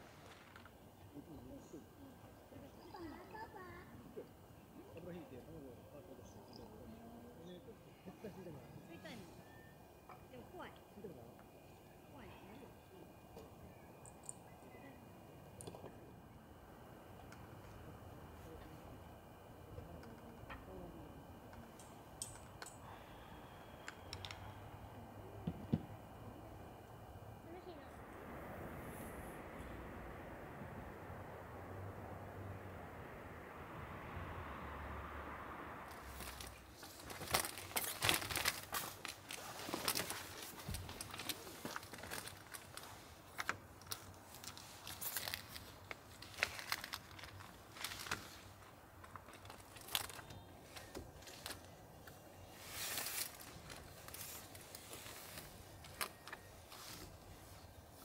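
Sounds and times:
crinkly rustling of fabric cover: 36.0s - 58.0s.

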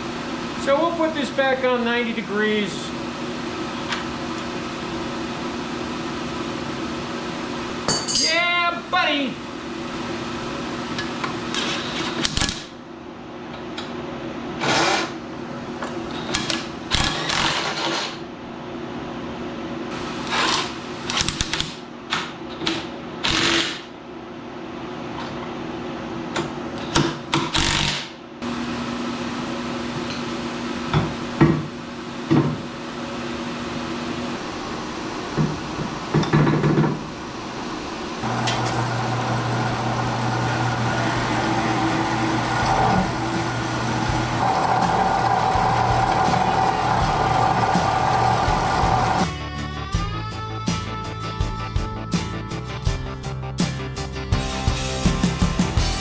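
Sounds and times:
heater and fan hum: 0.0s - 56.0s
deep motor hum: 38.2s - 50.2s.

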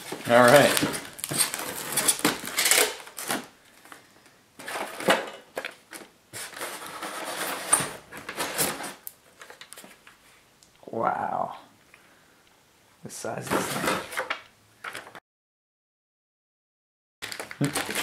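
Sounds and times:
foam packing insert rustling: 0.0s - 4.0s, 4.6s - 10.0s, 17.2s - 18.0s
plastic wrapping crinkling: 0.0s - 4.0s, 17.2s - 18.0s.

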